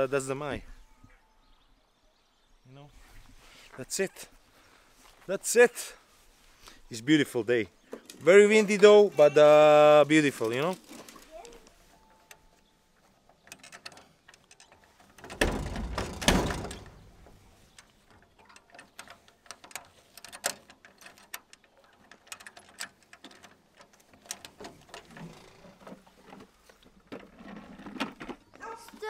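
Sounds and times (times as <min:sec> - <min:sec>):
metal gate latch clicking and rattling: 0:08.0 - 0:26.4.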